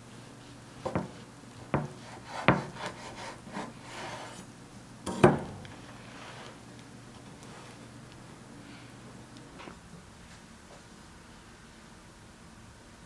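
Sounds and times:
knocks on wooden cutting board: 0.9s - 1.1s, 1.8s - 2.7s
knife sawing through crusty sandwich: 2.0s - 4.5s.

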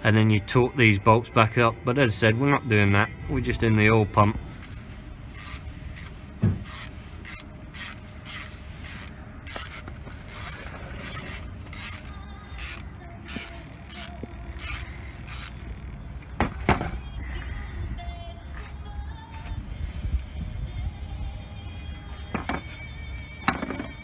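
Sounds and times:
ratchet wrench clicking: 5.4s - 15.6s.

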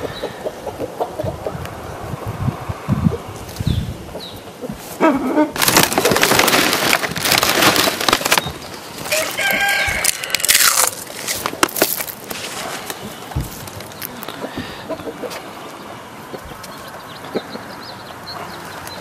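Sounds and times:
rooster and chickens calling: 0.0s - 5.8s, 9.0s - 19.0s
rough crackly noise: 4.8s - 17.5s.

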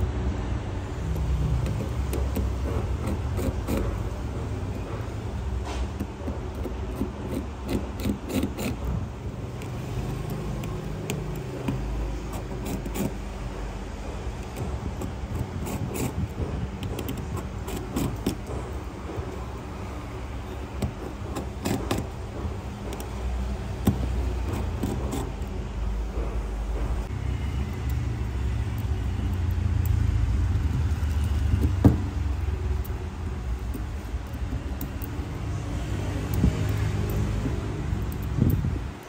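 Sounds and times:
screwdriver clicks and taps: 6.0s - 13.1s, 31.1s - 35.4s, 36.1s - 38.8s.

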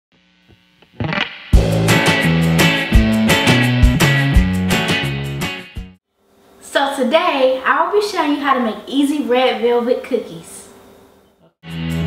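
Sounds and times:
intro music with a beat: 1.0s - 6.0s, 11.6s - 12.0s.

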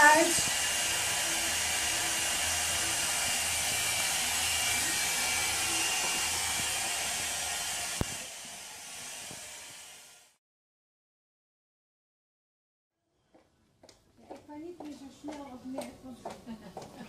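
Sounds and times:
hot-air brush blowing: 0.0s - 10.4s.

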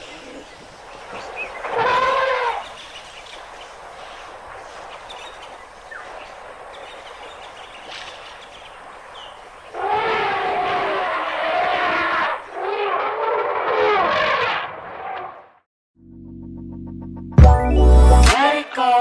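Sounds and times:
elephant trumpeting: 1.1s - 2.8s, 9.7s - 15.4s.

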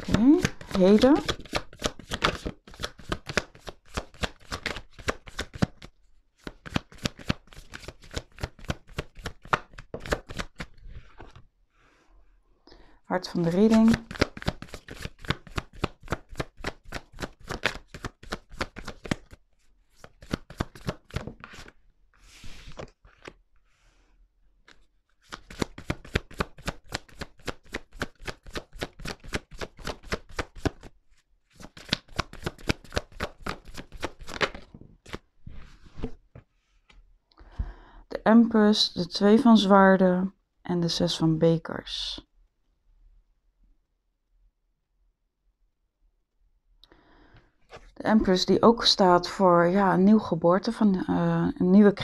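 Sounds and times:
cards being shuffled: 0.0s - 11.4s, 13.3s - 23.4s, 24.6s - 37.0s.

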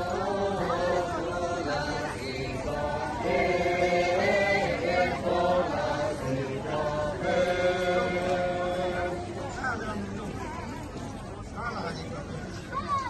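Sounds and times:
group of voices singing in unison: 0.0s - 9.4s.

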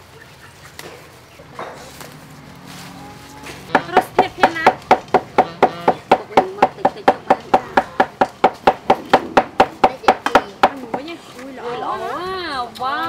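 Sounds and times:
cleaver chopping on wooden board: 3.7s - 11.1s.

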